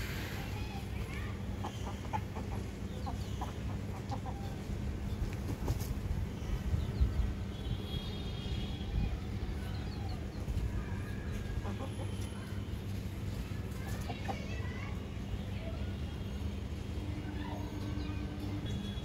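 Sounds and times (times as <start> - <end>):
chickens clucking: 1.5 - 6.1, 11.3 - 14.6.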